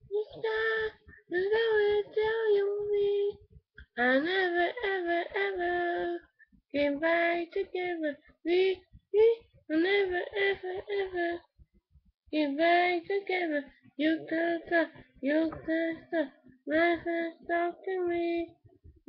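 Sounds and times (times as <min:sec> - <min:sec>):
girl singing unaccompanied: 0:00.0 - 0:11.5, 0:12.3 - 0:18.6.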